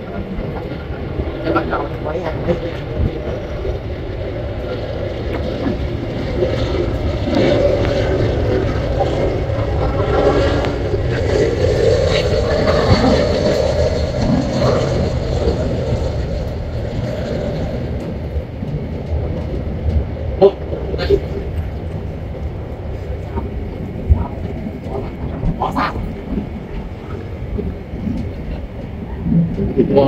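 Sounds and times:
jet engines rumbling: 0.0s - 30.0s.

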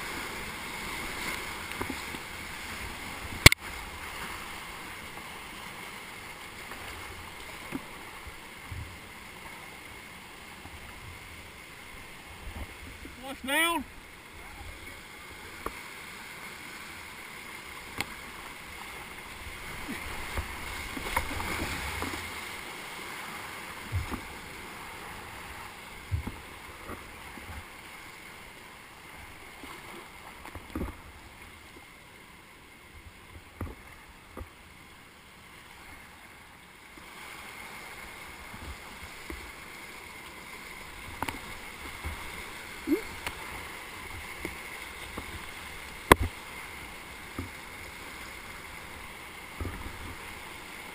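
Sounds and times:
whitewater rapids rushing: 0.0s - 30.4s
paddle knocks and splashes: 19.7s - 22.3s, 23.8s - 24.4s, 26.0s - 27.7s, 29.6s - 31.0s, 43.2s - 46.5s.

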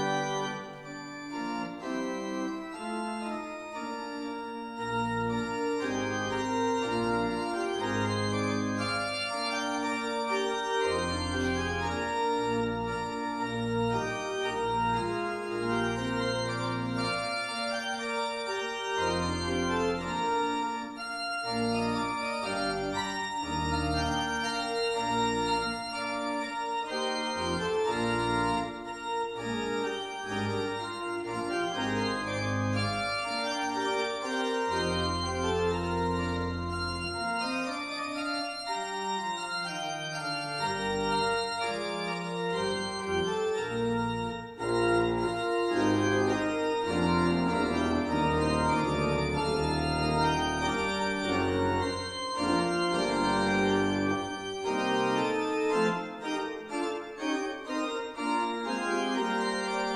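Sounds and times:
organ music: 0.0s - 59.9s.

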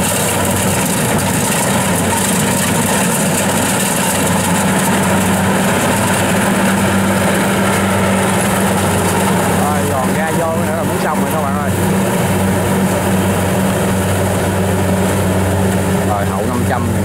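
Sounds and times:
combine harvester engine hum: 0.0s - 17.0s.

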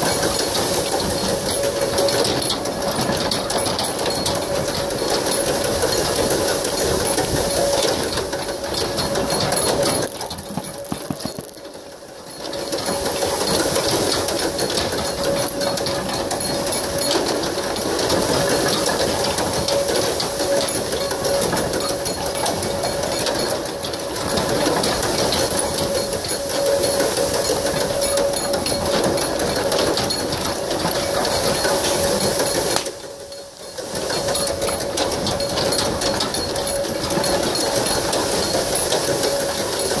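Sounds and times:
wooden frame rattling clatter: 0.0s - 40.0s.

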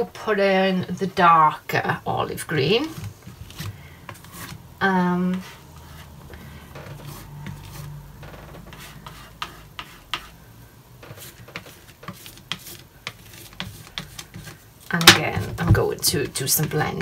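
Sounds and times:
palette knife scraping paint: 5.3s - 8.0s, 8.6s - 10.3s, 11.1s - 14.6s.

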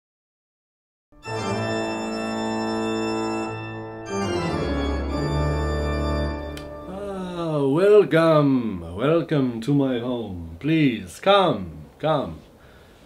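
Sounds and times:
organ chords: 1.2s - 8.6s.

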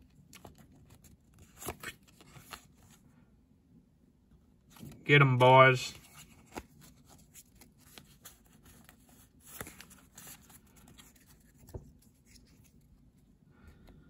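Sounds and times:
cards sliding: 0.4s - 2.9s, 6.0s - 12.8s.

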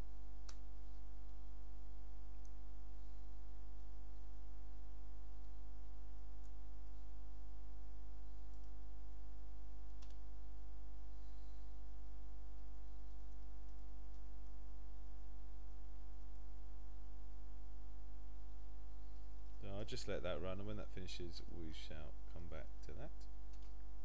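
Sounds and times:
electrical mains hum: 0.0s - 24.0s
faint clicks: 0.4s - 0.7s, 8.5s - 8.8s, 9.8s - 10.2s.

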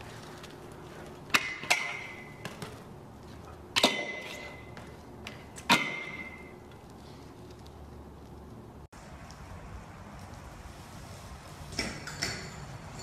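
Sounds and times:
bike striking metal rail: 1.3s - 2.8s, 3.7s - 6.7s, 11.7s - 13.0s.

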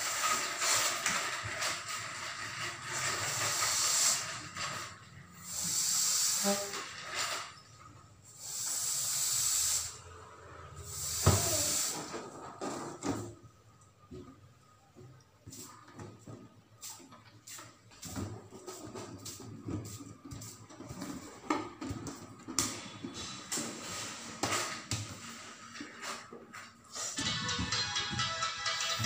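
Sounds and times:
air hissing into balloons: 0.0s - 13.2s, 22.6s - 27.2s.

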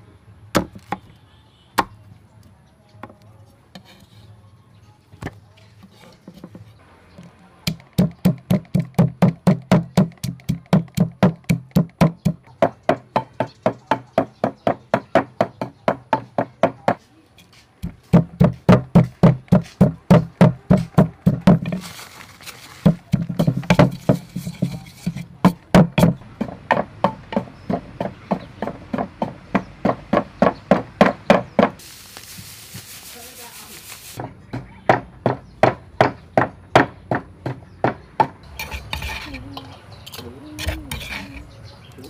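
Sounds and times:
wooden pestle pounding in mortar: 7.7s - 17.0s, 17.8s - 21.8s, 22.8s - 31.8s
short rustling hiss: 31.8s - 34.2s.

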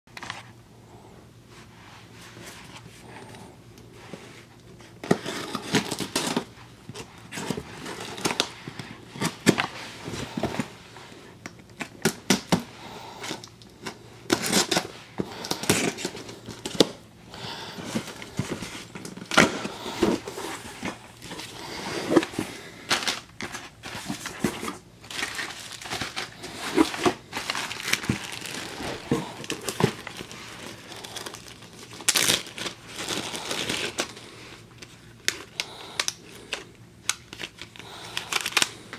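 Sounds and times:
plastic bag crinkling: 17.6s - 34.4s, 37.2s - 38.9s
cardboard scraping and rustling: 17.8s - 31.4s
tape tearing: 23.0s - 34.1s.

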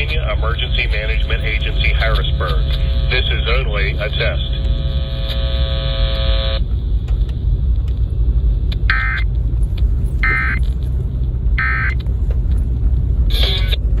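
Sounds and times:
warbling data bursts: 0.0s - 6.6s
low hum: 0.0s - 14.0s.

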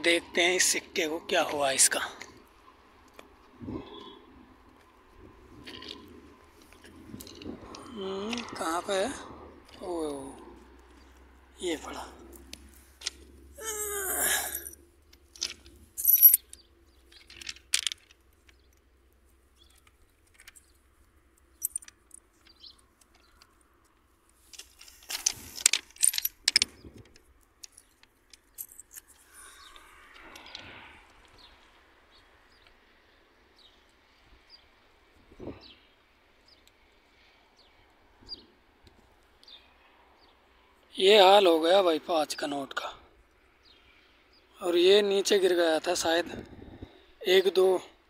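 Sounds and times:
coin and stones clicking: 14.1s - 18.2s, 21.5s - 22.6s, 24.6s - 26.8s.

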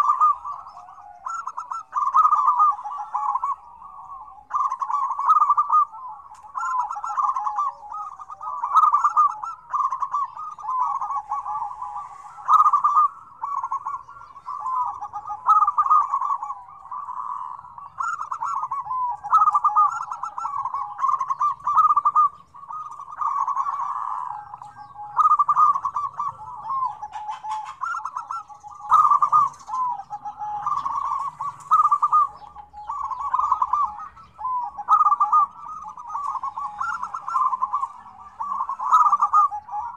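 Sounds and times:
doves cooing: 0.0s - 39.9s.

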